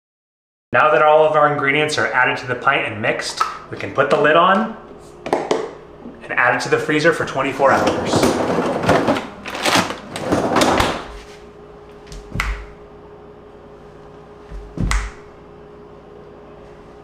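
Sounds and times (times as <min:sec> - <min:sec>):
faint steady hum: 0:00.8 - 0:17.0
freezer drawer sliding shut: 0:07.6 - 0:11.3
finger snaps: 0:12.1 - 0:12.8, 0:14.8 - 0:15.3.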